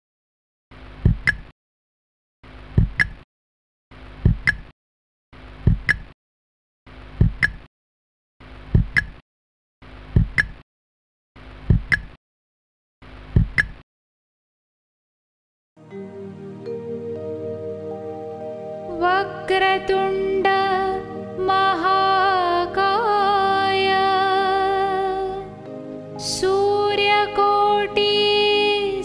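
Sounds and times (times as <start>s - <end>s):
countdown hits with low thump: 2.8s - 3.2s, 5.6s - 6.1s, 8.8s - 9.2s, 11.7s - 12.1s.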